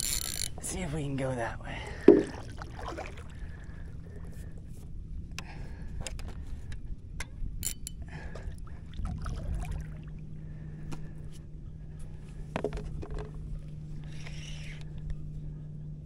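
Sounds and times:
paddle sloshing in water: 2.0s - 3.6s
sharp knocks: 2.1s - 2.4s.

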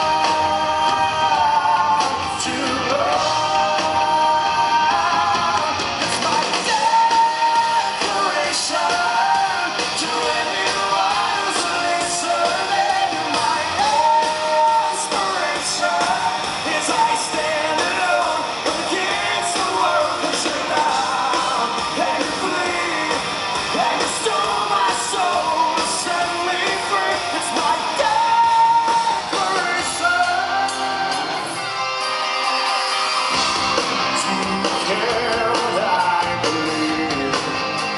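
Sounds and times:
man singing lead vocal: 0.0s - 31.8s, 33.3s - 37.9s
live rock band playing: 0.0s - 37.9s.

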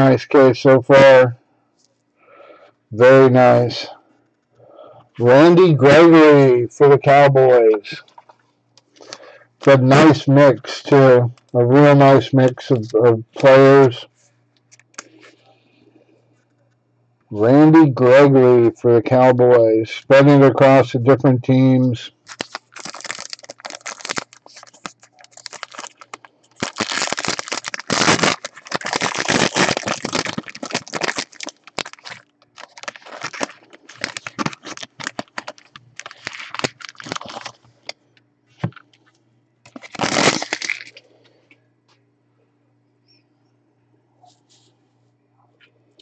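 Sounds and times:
foil wrapper crinkling: 22.2s - 37.9s, 39.7s - 41.0s.

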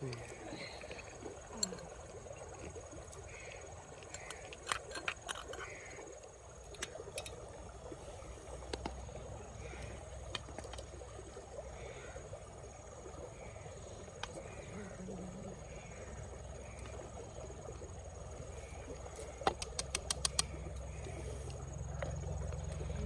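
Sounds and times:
sharp clicks: 19.4s - 20.6s.

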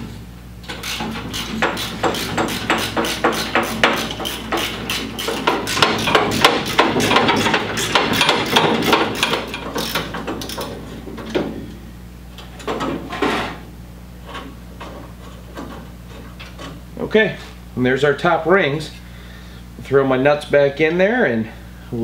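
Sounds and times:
metal clunks and scrapes: 0.0s - 11.8s, 12.4s - 17.6s
ratchet wrench clicking: 0.8s - 10.7s.

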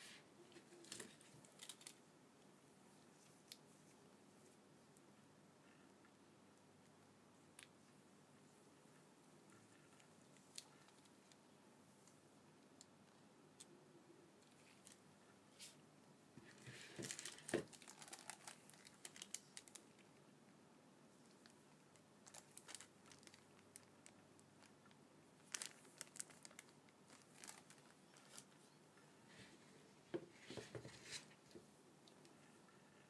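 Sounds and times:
plastic bag crinkling: 0.7s - 2.0s, 16.5s - 20.0s, 22.2s - 28.7s.

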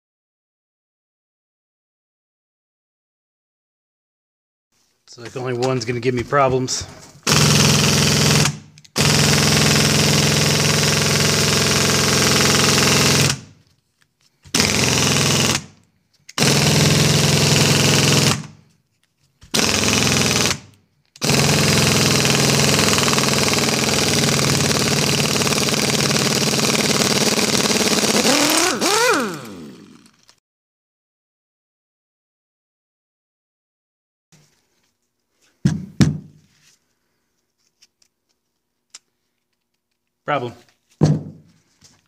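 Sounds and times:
pneumatic wrench running: 7.2s - 13.6s, 14.5s - 18.6s, 19.4s - 30.4s.

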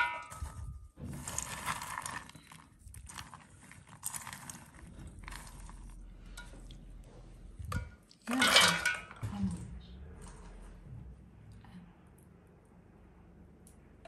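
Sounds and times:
walnut pieces rustling in a bowl: 0.0s - 6.0s.

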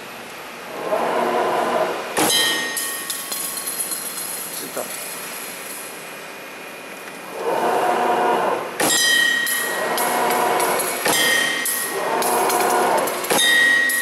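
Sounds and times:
metallic clack with ringing: 2.2s - 5.8s, 8.8s - 14.0s
machine whirring: 7.2s - 14.0s.

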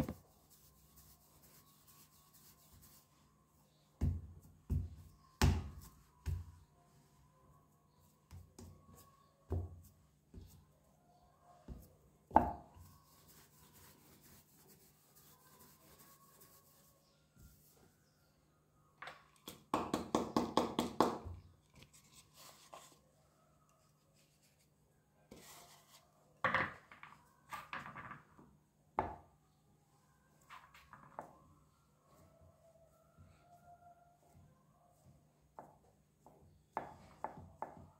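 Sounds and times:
hands patting clay on a board: 4.0s - 6.7s, 8.3s - 10.6s, 35.5s - 37.9s.

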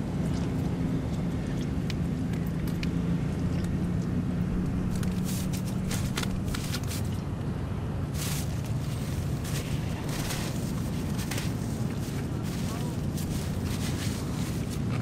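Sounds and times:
steady low hum and rumble: 0.0s - 15.0s
paper wrapper crinkling: 4.9s - 7.2s, 8.1s - 15.0s.

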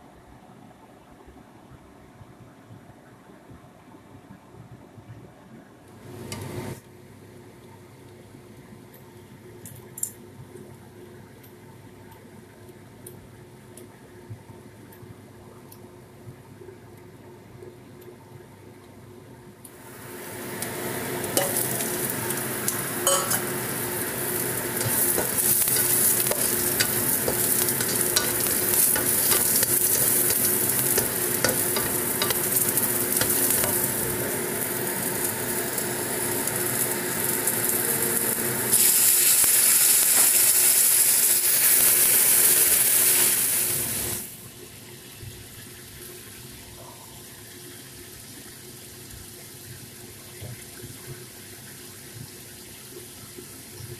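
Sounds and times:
vegetables sizzling in hot oil: 19.7s - 46.6s
spatula scraping a wok: 21.3s - 34.2s.

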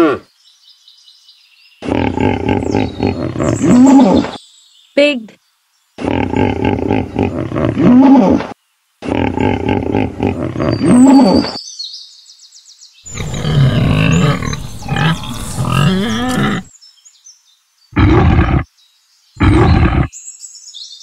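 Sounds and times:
pig grunting: 6.0s - 11.6s, 13.1s - 16.7s, 18.0s - 18.7s, 19.4s - 20.1s
bird chirps: 10.7s - 17.5s.

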